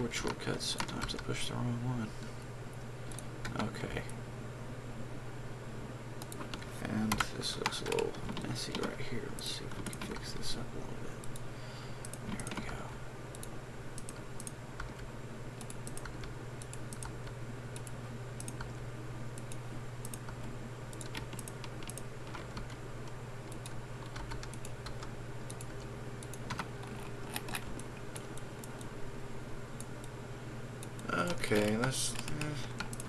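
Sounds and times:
steady low hum: 0.0 - 33.0
keyboard keys clicking: 19.4 - 28.9.

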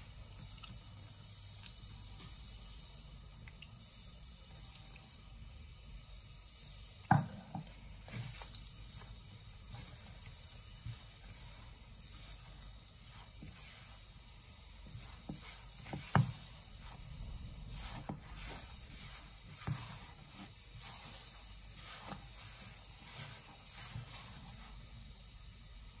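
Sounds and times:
hand mixing dough in plastic bowl: 6.4 - 25.0.

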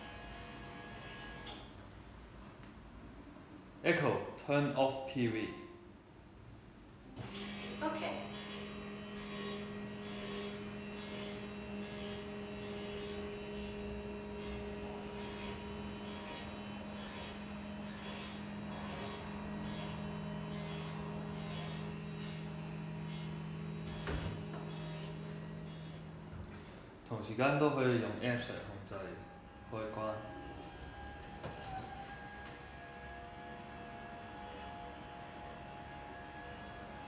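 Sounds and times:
electric motor humming: 7.2 - 26.7, 29.0 - 37.0.

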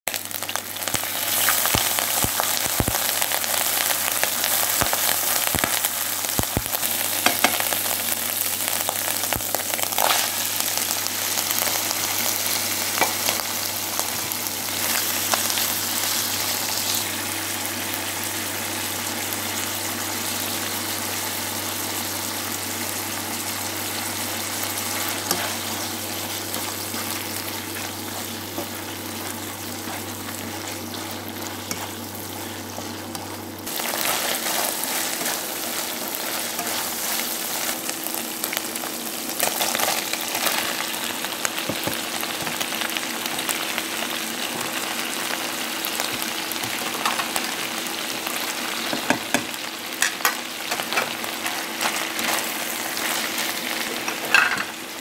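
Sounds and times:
food sizzling in hot oil: 0.1 - 55.0
steady low hum: 7.8 - 41.3.

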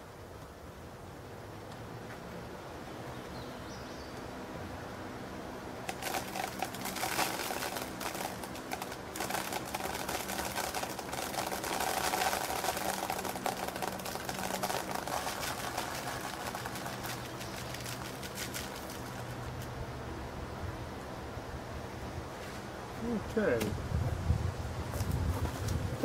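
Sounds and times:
fan humming: 0.0 - 26.0
grain pattering on plastic: 5.8 - 19.8.

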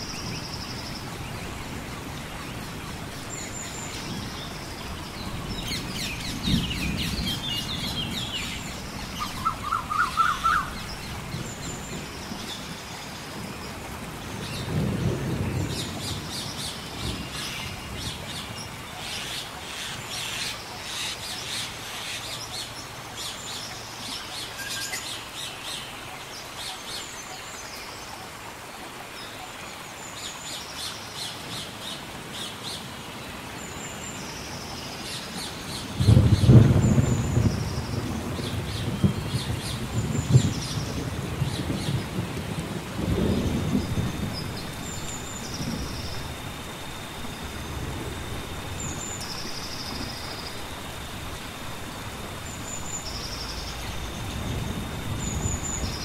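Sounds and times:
steady rain: 0.0 - 56.0
deep rumbles of thunder: 1.1 - 12.8, 13.4 - 18.7, 35.9 - 56.0
birds chirping and calling: 5.5 - 12.4.

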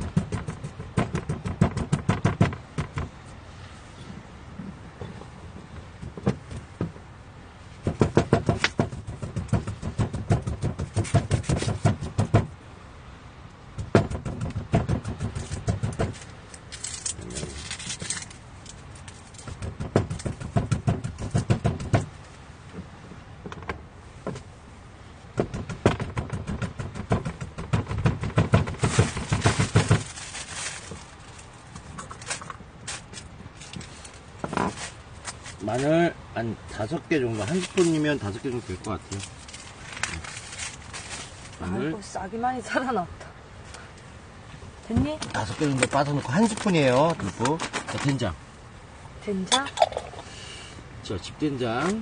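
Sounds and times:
knife handle pounding garlic: 7.8 - 12.5, 13.8 - 16.1.

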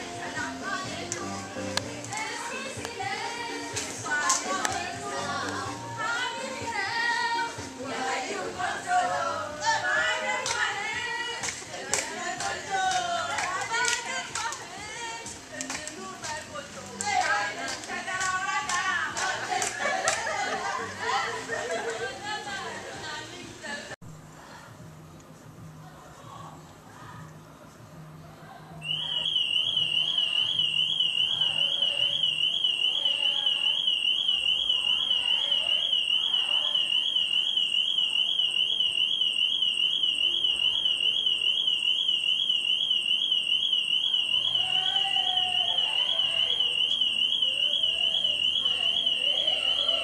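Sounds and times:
car alarm warbling: 28.8 - 50.0.

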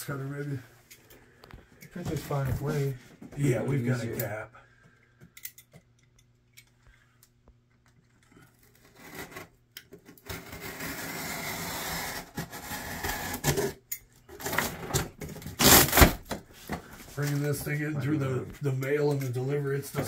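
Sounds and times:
box cutter slicing cardboard: 10.3 - 13.8, 15.5 - 16.2.

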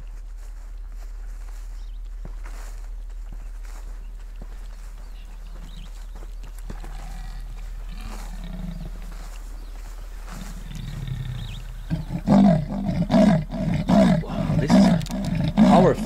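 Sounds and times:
outdoor ambience: 0.0 - 16.0
animal roaring: 6.8 - 9.2, 10.3 - 16.0.

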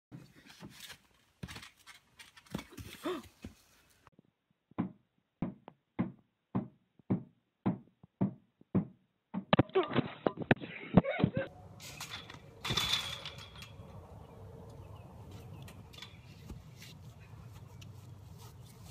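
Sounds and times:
outdoor thumps: 4.7 - 10.6.

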